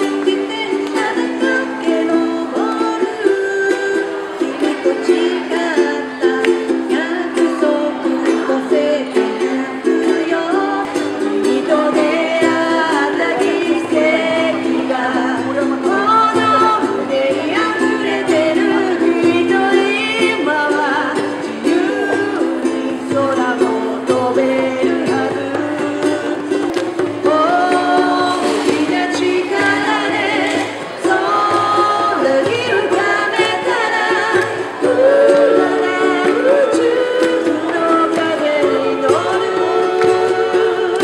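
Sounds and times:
hand drum playing: 0.0 - 41.0
ukulele strumming: 0.0 - 41.0
woman singing: 0.0 - 41.0.

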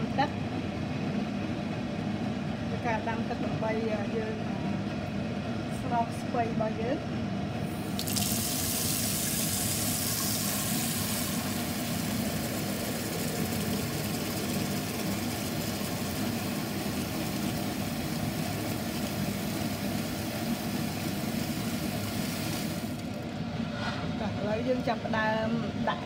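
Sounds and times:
tap water pouring into metal pot: 7.8 - 23.2.

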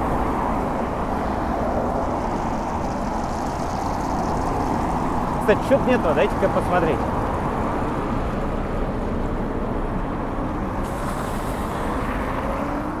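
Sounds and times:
road traffic noise: 0.0 - 13.0
vehicle passing hiss: 10.8 - 13.0.

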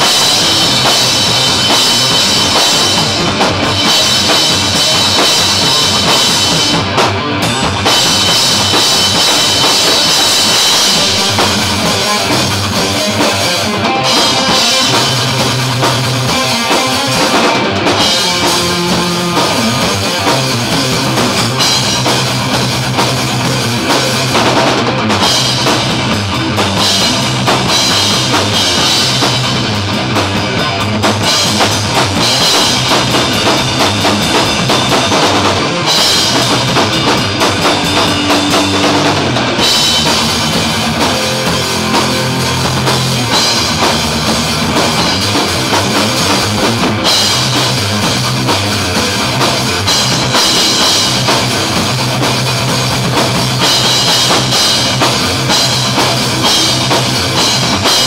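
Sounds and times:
drum kit played hard: 0.0 - 58.0
electric guitar riffs: 0.0 - 58.0.

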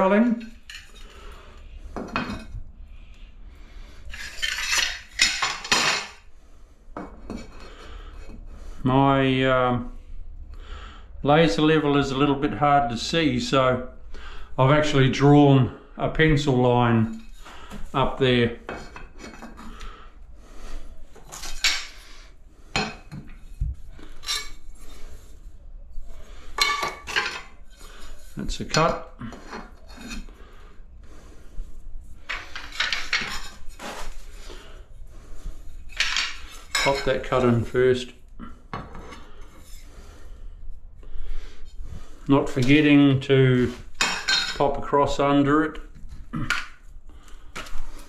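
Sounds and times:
tile scraping against tile: 32.2 - 34.6.

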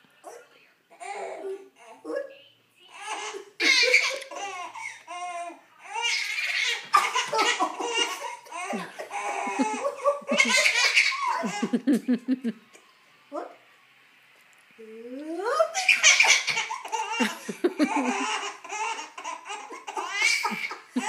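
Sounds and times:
baby laughing: 3.0 - 12.2, 15.7 - 21.0.

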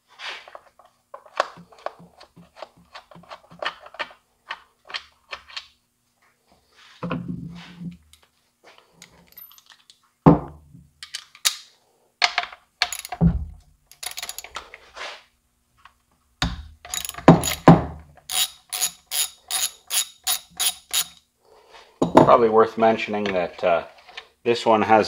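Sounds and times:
socket wrench ratcheting: 12.8 - 13.2, 13.9 - 14.6, 16.9 - 17.7, 18.3 - 21.2.

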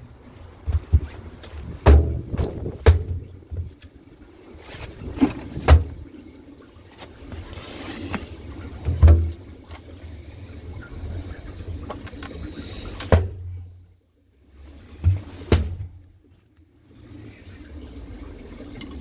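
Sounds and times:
boots thudding on metal cover: 0.6 - 3.7, 15.0 - 16.0.

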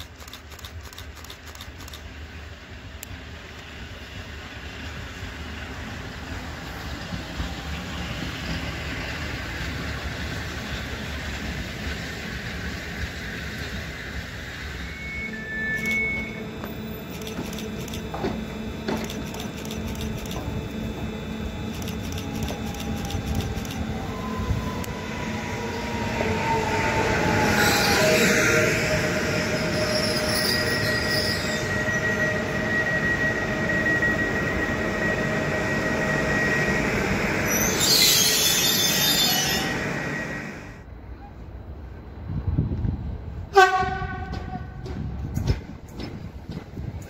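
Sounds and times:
wheel and rail noise: 0.0 - 47.0
electric train drive whining: 13.6 - 29.8.

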